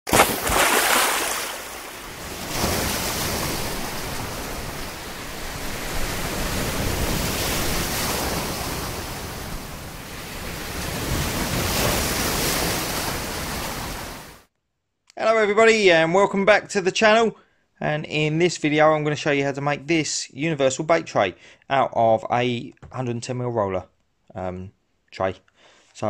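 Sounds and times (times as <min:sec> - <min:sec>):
wind: 0:00.1 - 0:14.4
sea waves breaking on shore: 0:00.1 - 0:14.5.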